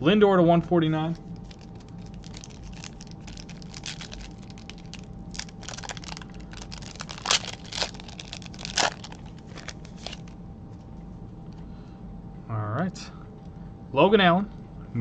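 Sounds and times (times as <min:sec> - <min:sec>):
foil wrapper crinkling and tearing: 0:01.4 - 0:10.4.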